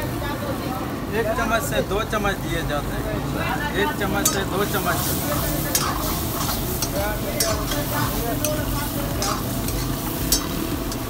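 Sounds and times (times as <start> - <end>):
gravy sizzling: 0.0 - 11.0
ladle scraping pan: 4.2 - 11.0
ladle clinking against pan: 9.2 - 11.0.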